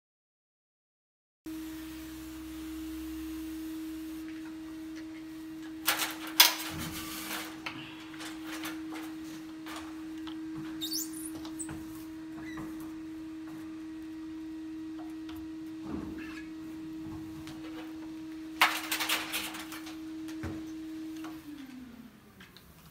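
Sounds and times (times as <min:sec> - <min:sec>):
steady hum: 0:01.5 - 0:22.9
hand squeaking on wet glass: 0:10.8 - 0:11.4.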